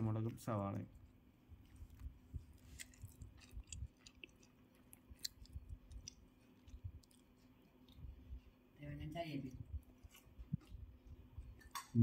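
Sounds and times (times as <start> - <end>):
chewing crispy snack: 2.5 - 8.2.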